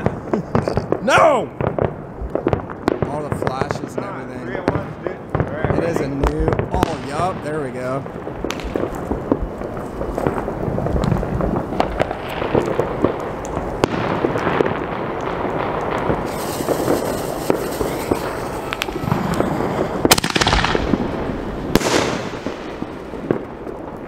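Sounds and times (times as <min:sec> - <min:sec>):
fireworks crackling and popping: 0:00.0 - 0:24.0
loud sharp firework bangs: 0:00.0 - 0:24.0
firework shell launching hiss: 0:15.8 - 0:23.1.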